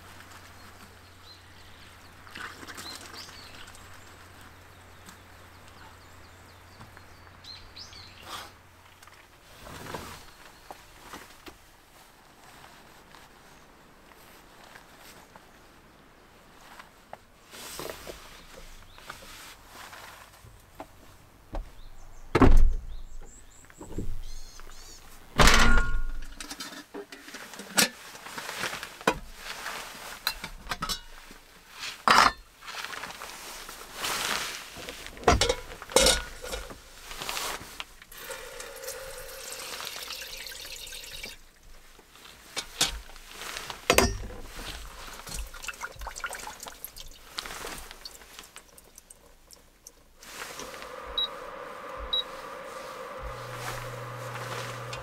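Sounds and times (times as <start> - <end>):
water pouring into metal pot: 38.1 - 41.6, 45.2 - 49.3.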